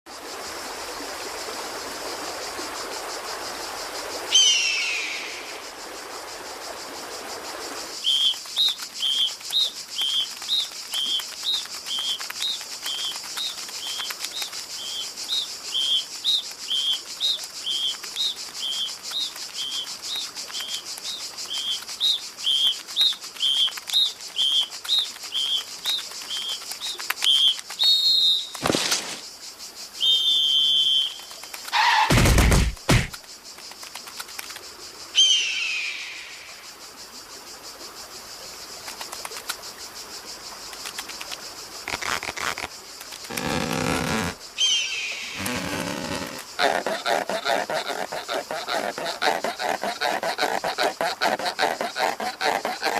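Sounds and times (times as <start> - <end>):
loud falling whistle: 30.0 - 31.2.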